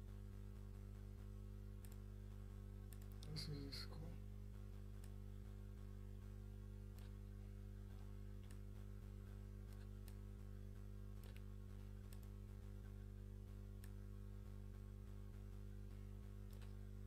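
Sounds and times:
steady low hum: 0:00.0 - 0:17.0
computer mouse clicking: 0:01.8 - 0:02.2, 0:02.9 - 0:03.4, 0:05.0 - 0:05.2, 0:06.9 - 0:07.2, 0:07.9 - 0:08.7, 0:09.6 - 0:10.3, 0:11.2 - 0:12.4, 0:13.8 - 0:14.0, 0:16.5 - 0:16.8.

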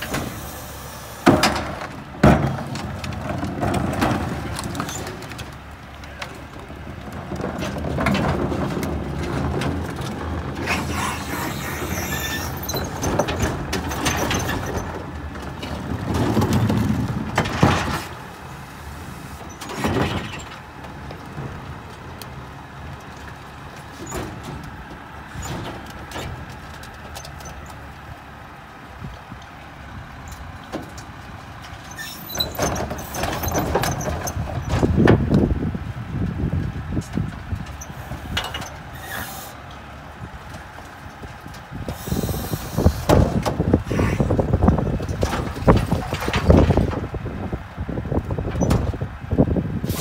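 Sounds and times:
trash and carts clattering: 0:00.0 - 0:50.0
truck engine running: 0:00.0 - 0:50.0
squealing: 0:10.6 - 0:13.0.

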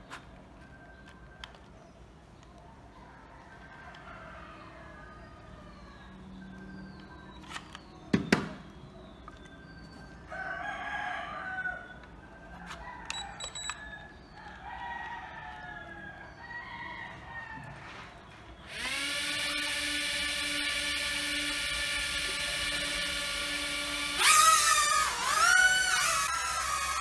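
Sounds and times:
rooster crowing: 0:10.3 - 0:17.9.

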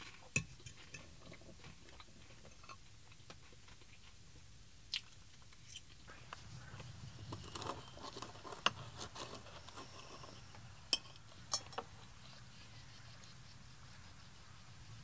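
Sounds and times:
knife and fork clinking on plate: 0:10.9 - 0:11.9.

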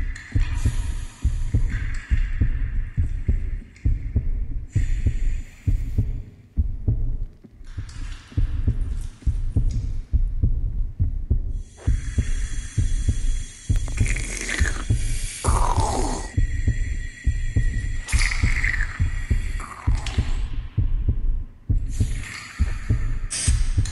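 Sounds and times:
low heartbeat-like throbbing: 0:00.0 - 0:23.9
high hiss: 0:11.6 - 0:20.3.

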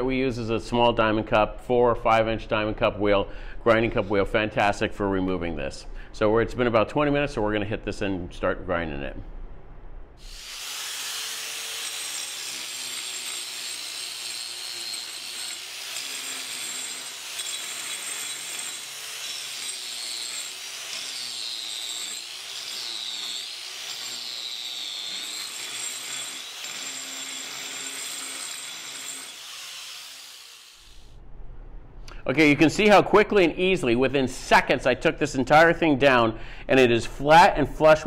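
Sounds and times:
angle grinder whining: 0:10.2 - 0:31.0.

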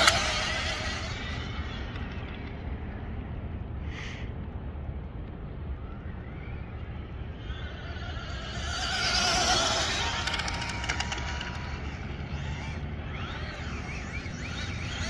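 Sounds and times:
rc car motor whine passing: 0:00.0 - 0:02.6, 0:07.2 - 0:15.0.

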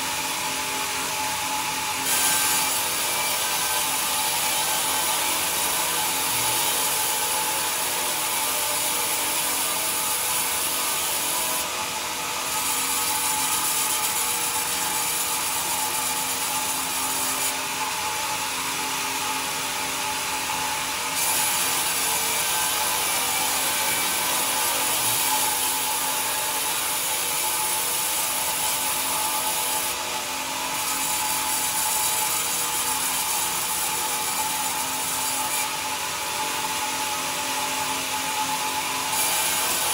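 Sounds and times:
band saw cutting timber: 0:00.0 - 0:39.9.

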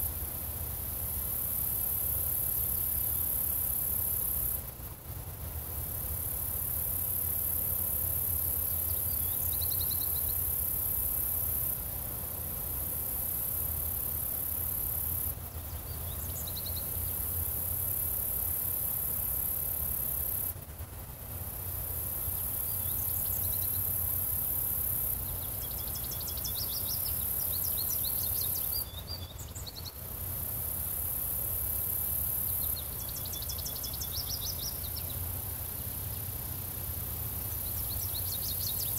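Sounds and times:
crickets trilling: 0:00.0 - 0:38.9
low rumble of breeze: 0:00.0 - 0:38.9.

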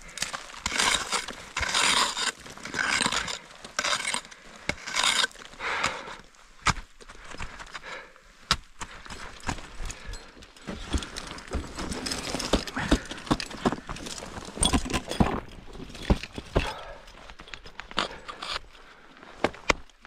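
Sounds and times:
scraping on ice: 0:00.0 - 0:05.6
ice tools striking ice: 0:00.2 - 0:05.4.

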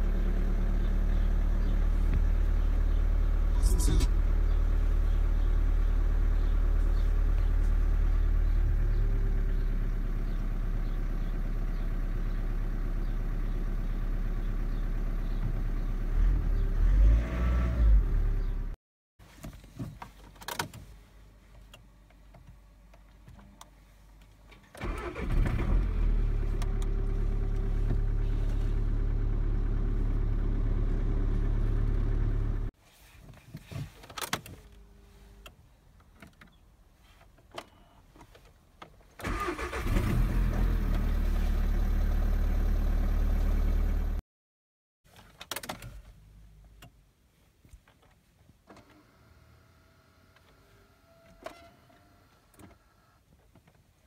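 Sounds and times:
diesel engine cranking: 0:24.7 - 0:30.1, 0:39.2 - 0:41.3.

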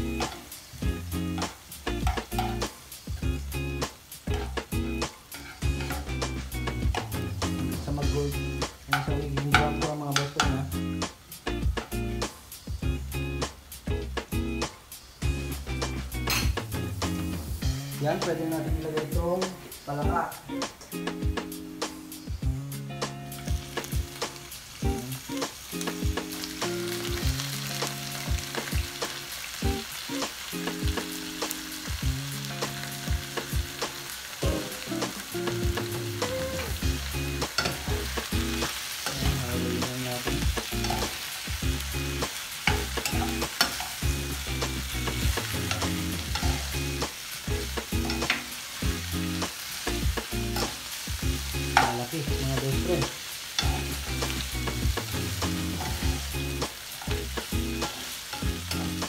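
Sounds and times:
meat sizzling in oil: 0:00.0 - 0:59.0
metal spoon scraping pan: 0:01.3 - 0:02.7, 0:05.3 - 0:06.2, 0:37.6 - 0:37.9, 0:40.8 - 0:41.2, 0:42.6 - 0:44.0, 0:48.0 - 0:48.5, 0:55.7 - 0:56.2.

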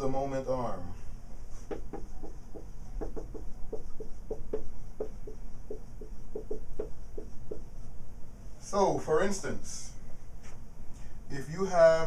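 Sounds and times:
whiteboard marker squeaking: 0:01.6 - 0:07.7.

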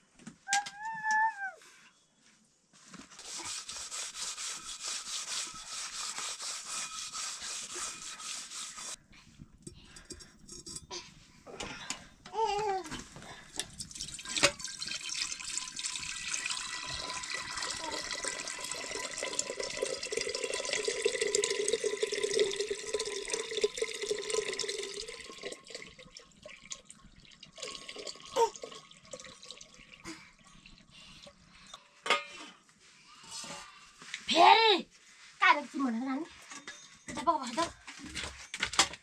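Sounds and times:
water pouring: 0:13.5 - 0:31.4.

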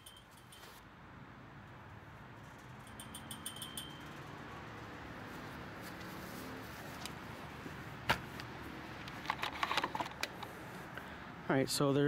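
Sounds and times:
metal gate clinking: 0:00.0 - 0:00.8, 0:02.5 - 0:04.8.

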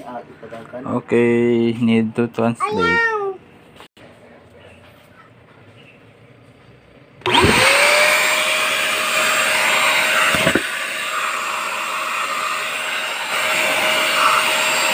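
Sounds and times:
vacuum cleaner motor whining: 0:07.2 - 0:14.9.

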